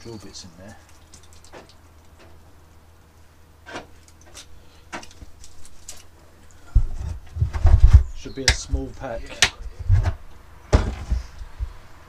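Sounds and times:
heavy dull thump: 6.7s - 11.8s.

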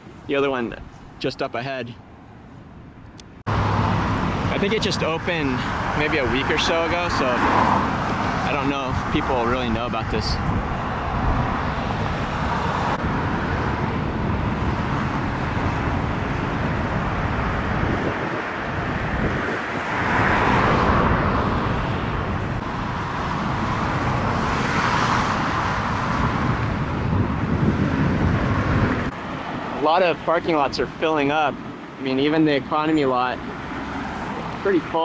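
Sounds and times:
road traffic noise: 0.0s - 35.0s.

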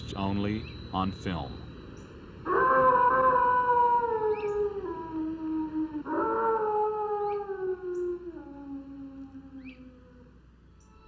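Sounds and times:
wolf howling: 2.4s - 10.5s.

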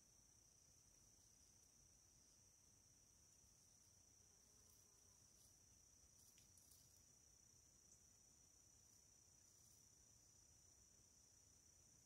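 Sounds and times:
crickets trilling: 0.0s - 12.0s
faint ticks: 4.6s - 7.1s.

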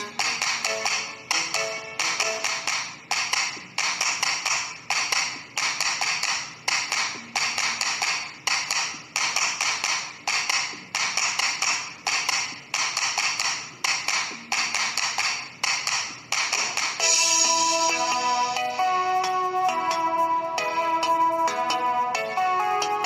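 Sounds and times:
music with tapping beat: 0.0s - 23.0s.

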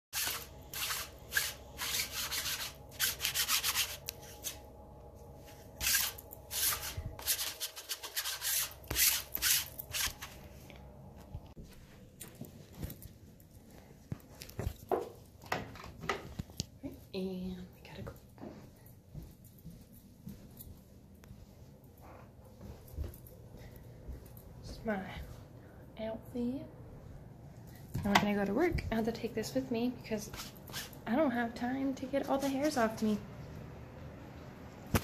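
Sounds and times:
lint roller rubbing clothing: 0.2s - 4.6s, 5.5s - 10.5s, 30.2s - 31.0s.

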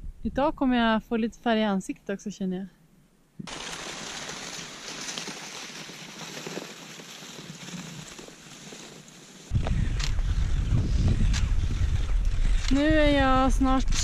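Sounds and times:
skis swishing over snow: 3.5s - 9.6s.

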